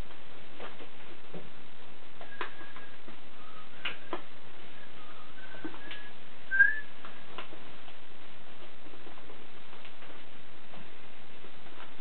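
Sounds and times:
person whistling short notes: 4.8s - 6.9s.

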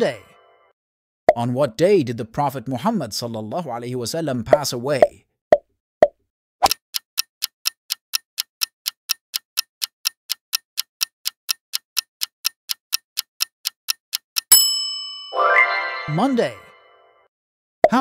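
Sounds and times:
clock ticking: 6.6s - 14.7s.

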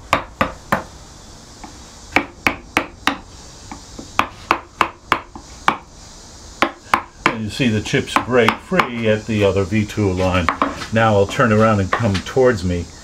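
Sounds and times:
mallet tapping carving gouge: 1.6s - 5.9s, 6.6s - 9.1s, 10.4s - 12.1s.

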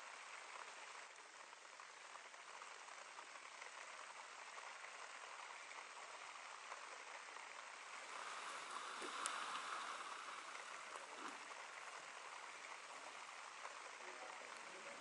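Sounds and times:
light rain falling: 0.0s - 15.0s
faint tick: 8.7s - 10.0s.

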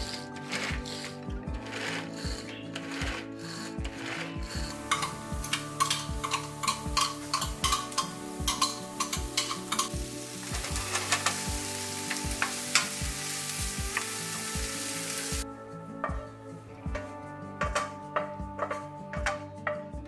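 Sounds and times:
spatula tapping and scraping pan: 4.1s - 14.8s
onion sizzling in oil: 4.8s - 15.4s.

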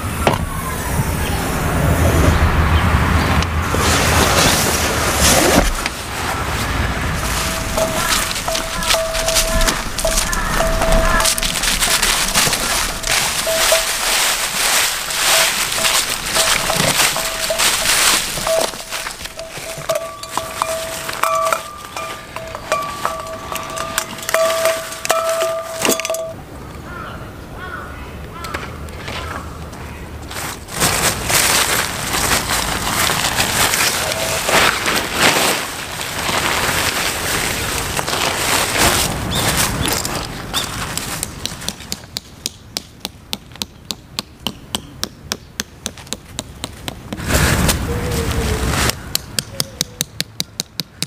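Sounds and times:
dry leaves crunching underfoot: 3.6s - 27.0s, 28.4s - 41.9s, 47.2s - 49.1s
steady held tone: 7.2s - 26.4s
hammer tapping tent peg: 41.4s - 47.0s, 49.1s - 51.0s.

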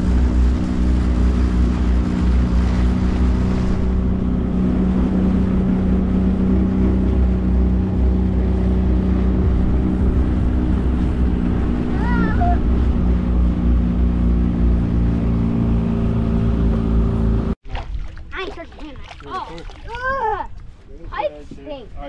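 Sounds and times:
wind rumbling on microphone: 0.0s - 17.6s
outboard motor running: 0.0s - 19.9s.

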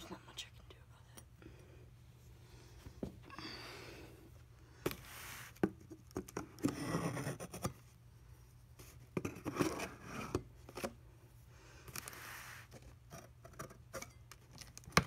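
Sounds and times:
cardboard packaging rustling and scraping: 4.9s - 7.8s, 8.8s - 11.0s.

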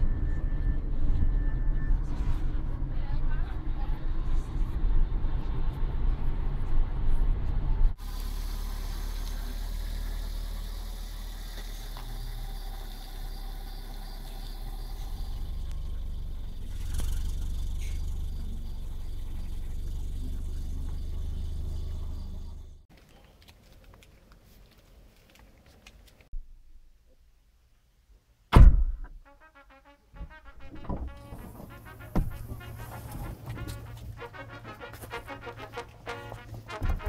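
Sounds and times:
car engine idling: 8.0s - 22.8s
car boot lid thunk: 30.8s - 32.6s.

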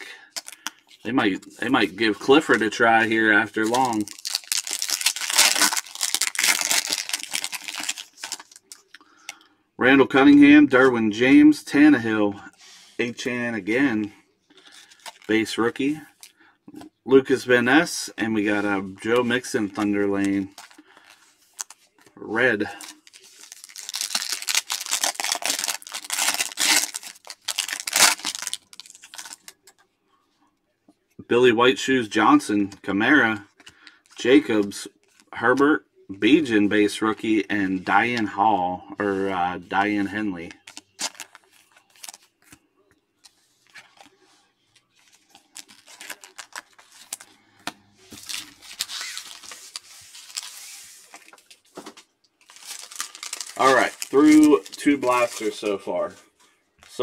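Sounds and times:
foil wrapper crinkling and tearing: 0.3s - 0.8s, 2.3s - 8.9s, 14.6s - 15.4s, 19.8s - 29.7s, 40.5s - 42.6s, 44.8s - 47.4s, 48.1s - 51.7s, 52.4s - 55.8s
cards sliding and rustling: 48.1s - 51.4s.

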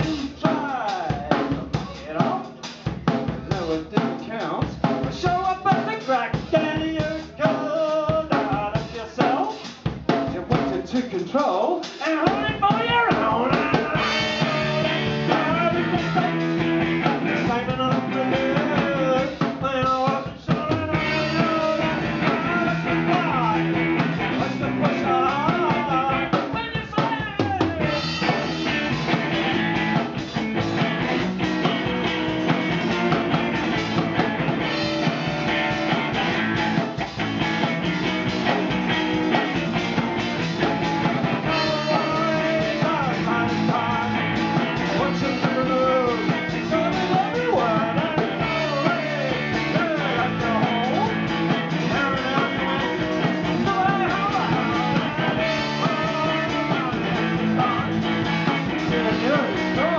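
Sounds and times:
man singing: 0.0s - 30.5s, 38.2s - 59.9s
drum kit: 0.0s - 59.9s
electric guitar: 12.2s - 59.9s.

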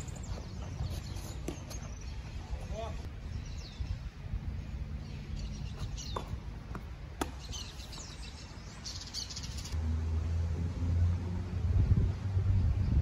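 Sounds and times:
small birds chirping: 0.0s - 6.5s, 7.2s - 9.8s
tennis ball bouncing on court: 1.4s - 1.8s, 6.1s - 8.0s.

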